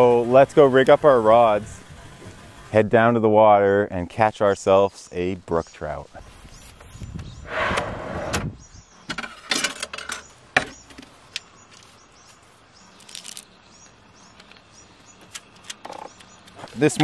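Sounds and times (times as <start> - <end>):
knocks and clicks of gear: 14.3 - 17.0.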